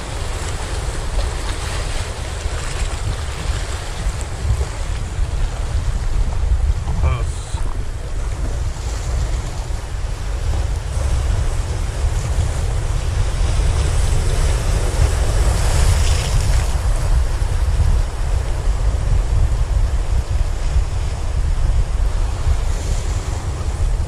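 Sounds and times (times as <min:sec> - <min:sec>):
sea surf: 0:00.0 - 0:24.0
wind rumbling on microphone: 0:00.0 - 0:24.0.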